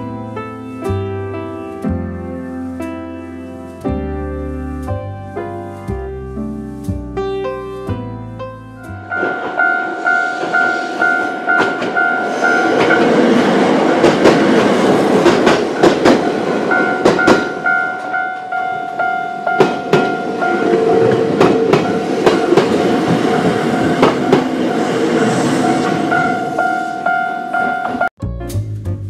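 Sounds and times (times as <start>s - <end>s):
level crossing bell ringing: 9.0s - 13.2s, 16.7s - 24.8s
train wheels clicking over rail joints: 12.6s - 17.6s, 19.6s - 25.4s.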